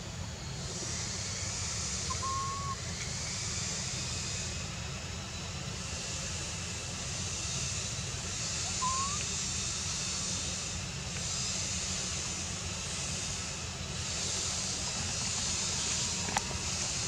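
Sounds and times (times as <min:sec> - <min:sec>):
steady high hiss: 0:00.0 - 0:17.0
rising whistle-like call: 0:02.1 - 0:02.8, 0:08.6 - 0:09.3.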